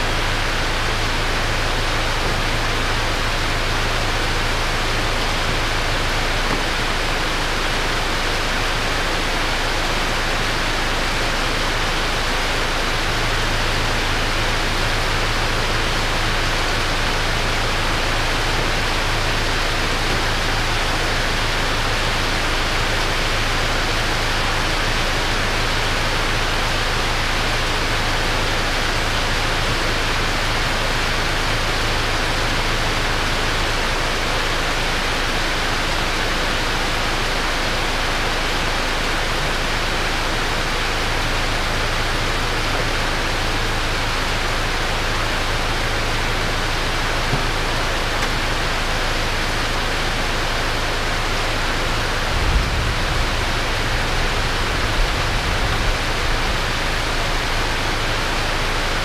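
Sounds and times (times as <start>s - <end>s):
heavy rain hissing: 0.0s - 59.0s.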